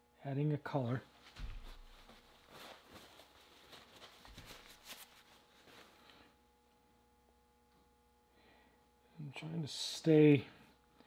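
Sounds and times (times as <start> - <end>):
faint steady hum: 0.0 - 11.0
handling ticks and rustles: 1.2 - 6.0.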